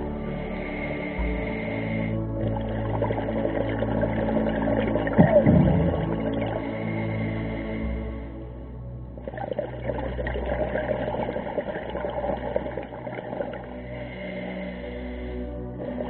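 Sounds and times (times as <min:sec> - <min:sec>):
steady low hum: 0:00.0 - 0:16.0
underwater bubbles rushing: 0:02.4 - 0:06.7, 0:09.2 - 0:13.7.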